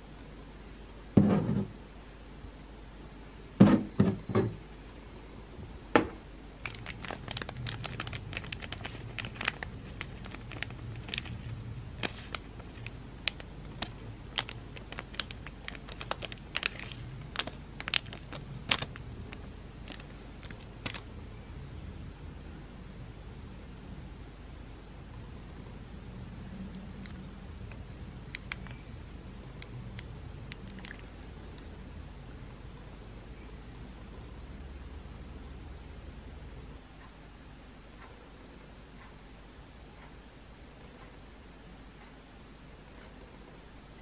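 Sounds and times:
flakes crinkling and clicking: 0:06.6 - 0:21.1, 0:26.7 - 0:28.8, 0:29.6 - 0:31.7.

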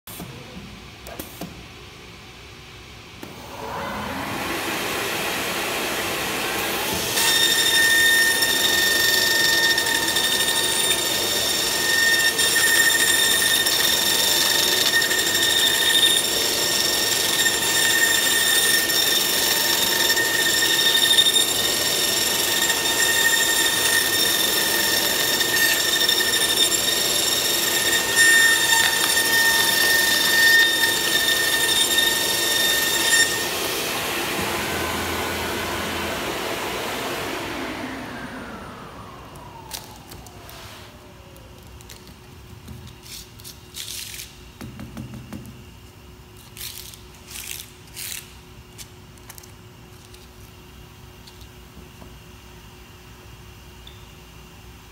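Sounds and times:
milling spindle whining: 0:03.5 - 0:41.8.

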